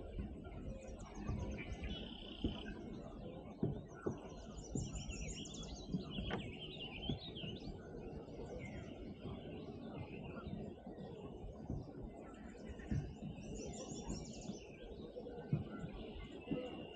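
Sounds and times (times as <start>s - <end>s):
songbirds singing and chirping: 0.0s - 16.9s.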